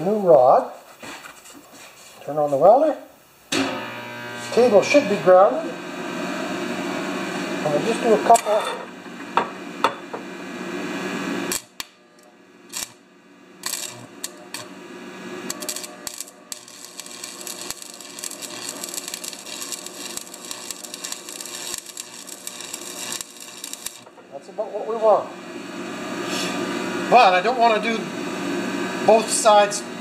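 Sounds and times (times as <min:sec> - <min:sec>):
welding arc crackling: 0:11.2 - 0:24.8.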